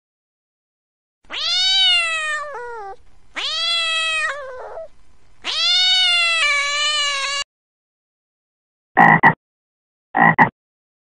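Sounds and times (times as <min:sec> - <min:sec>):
cat meowing: 0:01.3 - 0:07.5.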